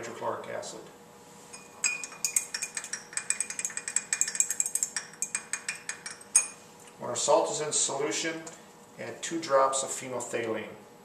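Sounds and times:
glass rod clinking in beaker: 0:01.5 - 0:06.6.

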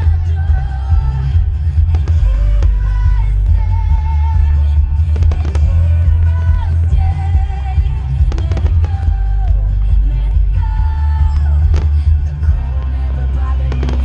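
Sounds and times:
loud music: 0:00.0 - 0:14.0
fireworks booming and crackling: 0:05.0 - 0:09.5, 0:11.3 - 0:12.9, 0:13.6 - 0:14.0.

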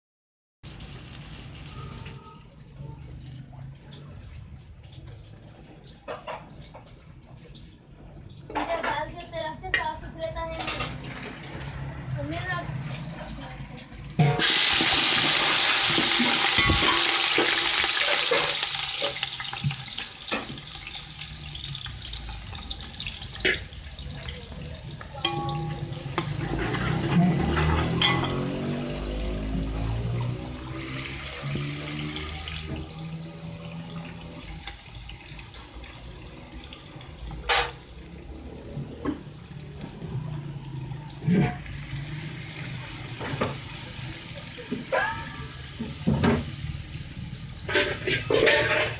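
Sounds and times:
onions sizzling in hot oil: 0:00.6 - 0:03.4, 0:13.4 - 0:48.9
spoon clinking against pot: 0:25.2 - 0:26.4.

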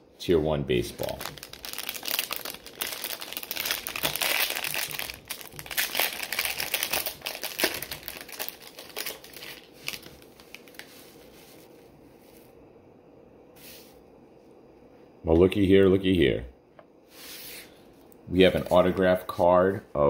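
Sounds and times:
foil wrapper crinkling: 0:01.0 - 0:11.3.

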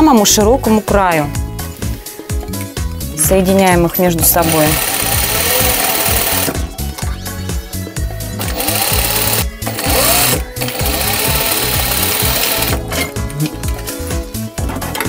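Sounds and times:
sewing machine stitching: 0:04.4 - 0:06.6, 0:08.4 - 0:12.8.

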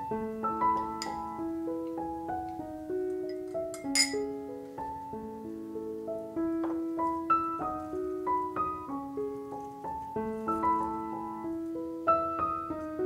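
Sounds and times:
gentle solo piano music: 0:00.0 - 0:13.0
spoon clinking glass cup: 0:00.8 - 0:01.3, 0:03.3 - 0:04.3.

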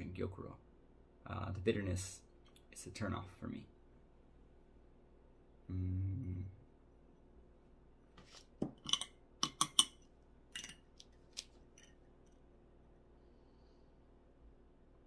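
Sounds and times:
teaware clinking and knocking: 0:10.6 - 0:10.9.

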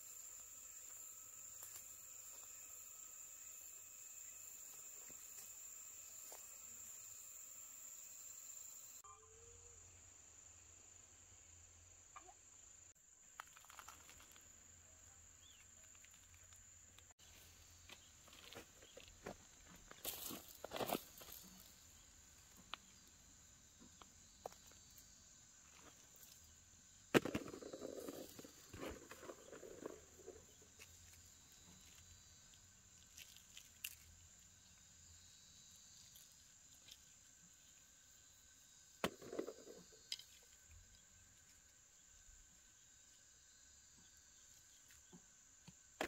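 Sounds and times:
high insect drone: 0:00.0 - 0:46.0.

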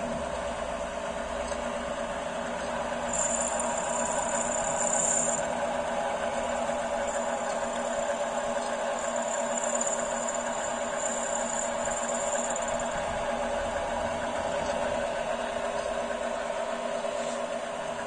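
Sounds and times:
lathe motor whirring: 0:00.0 - 0:18.0
thin high whine: 0:02.6 - 0:13.8.

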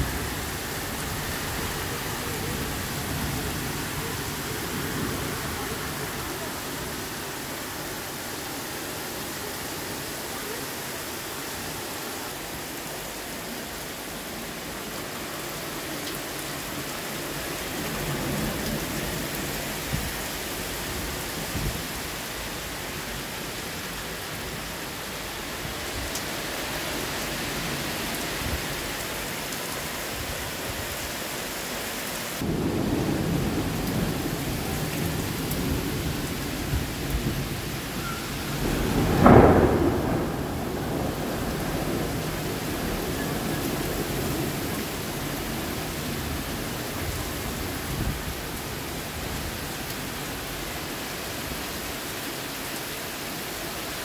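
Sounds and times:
heavy rain pouring: 0:00.0 - 0:54.0
thunder rumbling: 0:32.4 - 0:48.5.

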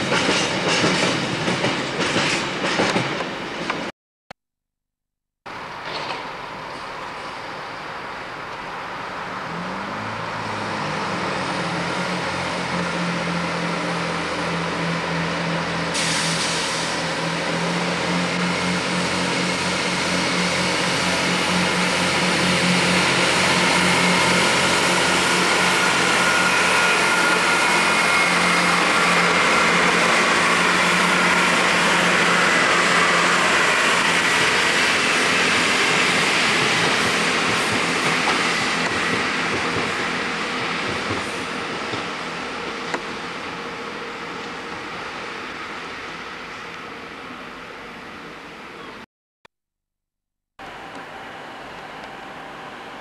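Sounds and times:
diesel train engine revving: 0:09.1 - 0:46.8
hiss of air: 0:16.0 - 0:17.1.

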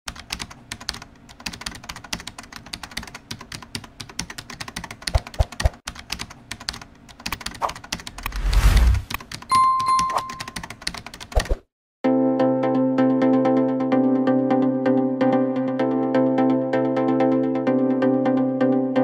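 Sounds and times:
whoosh sound effect: 0:08.2 - 0:09.2.

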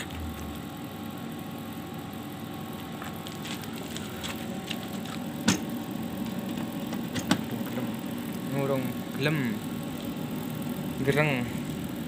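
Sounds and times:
amplifier electrical hum: 0:00.0 - 0:12.0
small crackles: 0:03.0 - 0:05.3.

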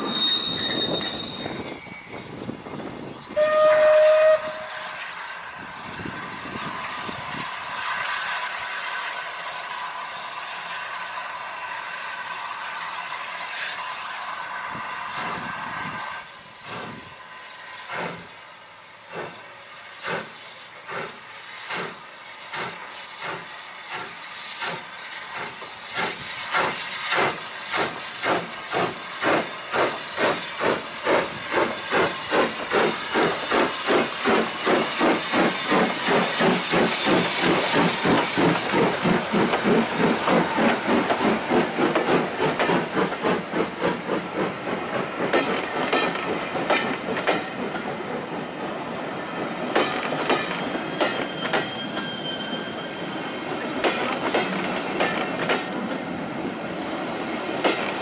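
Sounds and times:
steam locomotive whistle: 0:00.0 - 0:02.3, 0:03.3 - 0:05.2, 0:50.5 - 0:53.7
steam hissing: 0:00.0 - 0:58.0.

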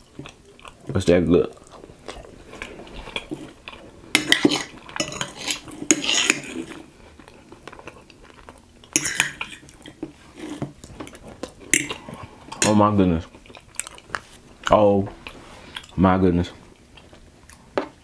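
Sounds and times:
fork scraping on a plate: 0:04.2 - 0:06.8.

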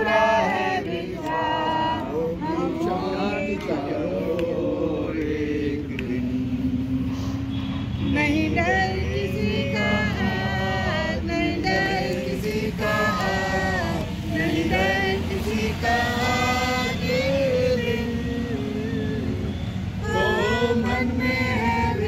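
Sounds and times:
voices singing slow melody: 0:00.0 - 0:22.0.

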